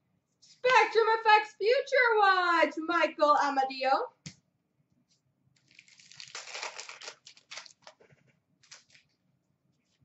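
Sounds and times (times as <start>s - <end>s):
paper crinkling and rustling: 5.6s - 9.2s.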